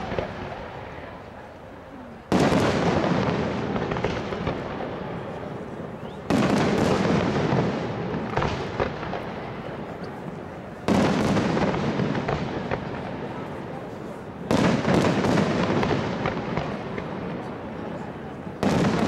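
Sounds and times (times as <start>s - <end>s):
sharp firework cracks: 2.3s - 5.4s, 6.3s - 13.4s, 14.4s - 17.5s, 18.6s - 19.0s
firework shells booming: 2.3s - 13.8s, 14.4s - 17.7s, 18.6s - 19.0s.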